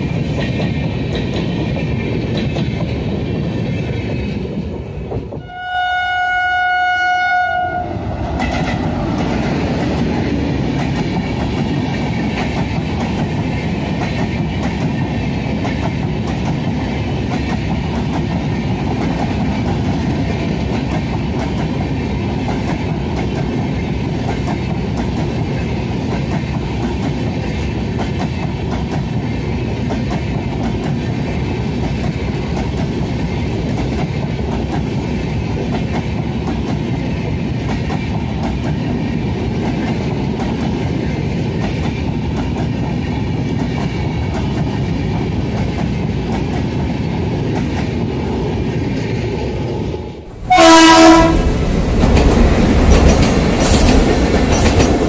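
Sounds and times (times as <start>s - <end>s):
train rushing past: 0.0s - 55.0s
locomotive horn: 5.4s - 8.8s, 50.4s - 51.6s.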